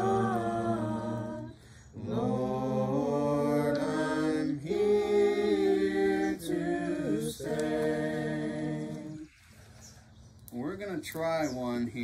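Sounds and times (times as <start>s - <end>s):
person singing unaccompanied: 0.0s - 9.3s.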